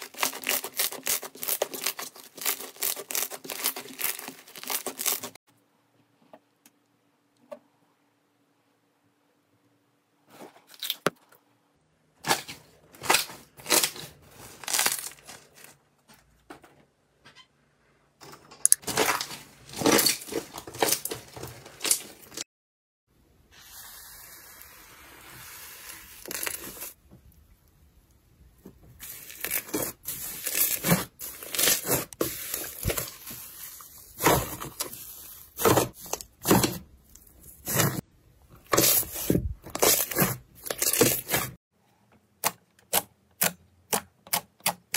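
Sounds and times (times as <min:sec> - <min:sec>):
scraping over foam slime: 0:23.5 - 0:27.0, 0:29.0 - 0:38.0, 0:38.7 - 0:41.6.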